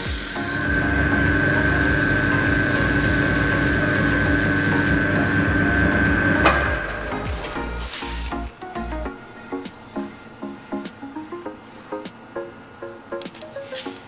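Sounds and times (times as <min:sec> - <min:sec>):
wood lathe motor whine: 0:00.4 - 0:07.8.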